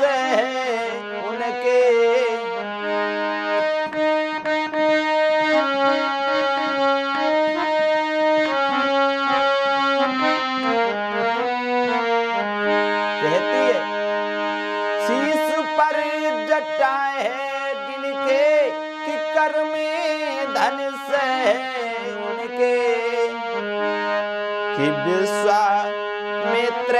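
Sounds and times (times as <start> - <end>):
man singing: 0.0 - 3.7, 13.1 - 14.0, 15.0 - 26.9
harmonium melody: 0.0 - 26.9.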